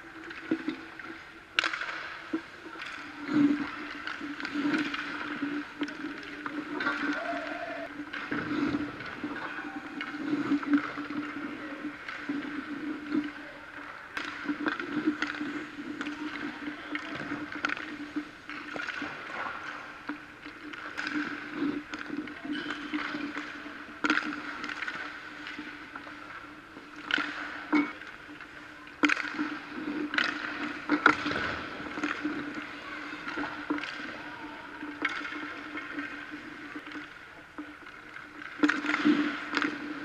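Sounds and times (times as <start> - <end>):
stick or puck clacking on ice: 0.2 - 34.2, 34.9 - 40.0
ice skates scraping on ice: 2.8 - 13.3.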